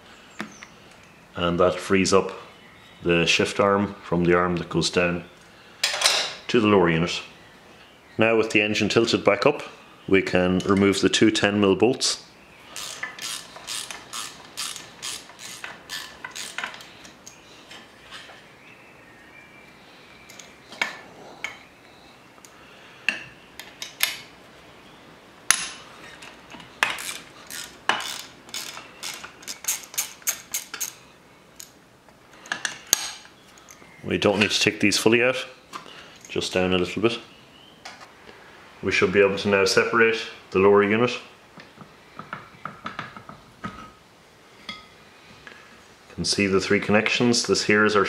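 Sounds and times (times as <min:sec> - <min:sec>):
ratchet wrench clicking: 0:12.8 - 0:16.9, 0:26.9 - 0:31.0.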